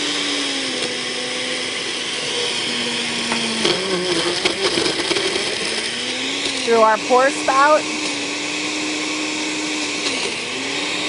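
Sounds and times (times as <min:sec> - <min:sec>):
blender running on high: 0:00.0 - 0:11.0
blender clicks: 0:03.0 - 0:06.7.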